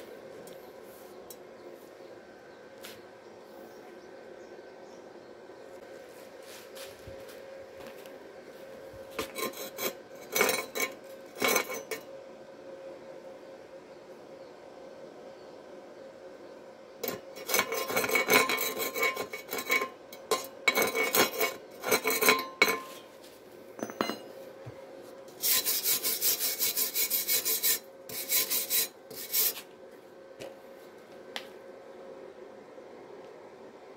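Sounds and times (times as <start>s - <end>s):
wire brush scraping metal: 9.2s - 12.1s, 17.0s - 23.2s, 25.3s - 29.7s.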